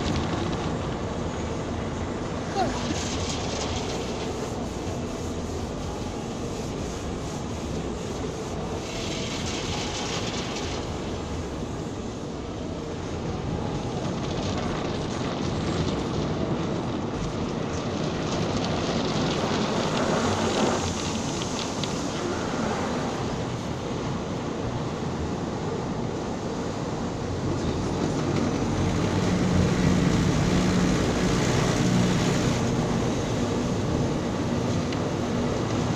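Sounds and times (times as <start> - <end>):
water spray in car wash: 0.0 - 35.9
washing brushes on car body: 2.4 - 12.3, 17.9 - 35.9
hissing spray: 2.6 - 12.2.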